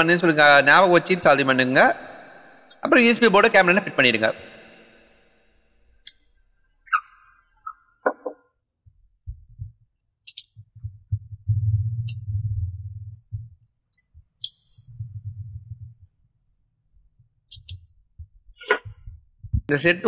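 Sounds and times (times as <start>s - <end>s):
muffled handling rumble: 14.2s - 16.1s.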